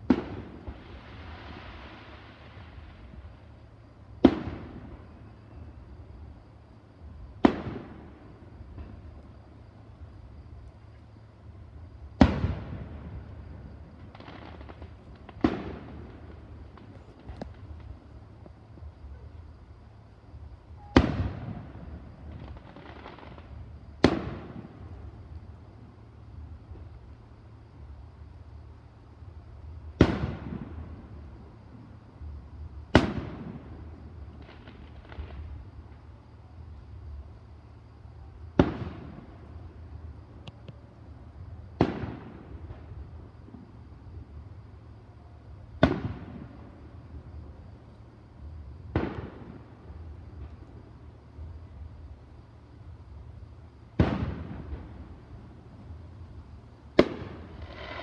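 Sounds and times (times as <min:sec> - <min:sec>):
firework booms with echo: 0:00.0 - 0:03.5, 0:04.2 - 0:05.7, 0:07.4 - 0:09.1, 0:12.2 - 0:18.2, 0:20.7 - 0:25.2, 0:29.8 - 0:31.2, 0:32.9 - 0:35.7, 0:38.5 - 0:39.6, 0:41.7 - 0:43.8, 0:45.7 - 0:47.0, 0:48.8 - 0:50.8, 0:53.9 - 0:56.0, 0:56.9 - 0:58.0
firework shells booming: 0:12.2 - 0:18.5, 0:45.7 - 0:46.6, 0:48.8 - 0:49.8, 0:54.0 - 0:55.2, 0:56.9 - 0:58.0.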